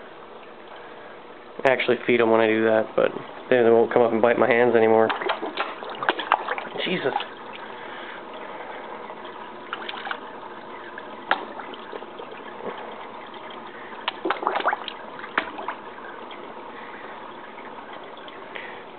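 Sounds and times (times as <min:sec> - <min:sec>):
water trickling: 0:02.0 - 0:18.9
fish splashing at surface: 0:05.0 - 0:08.2, 0:09.2 - 0:17.0.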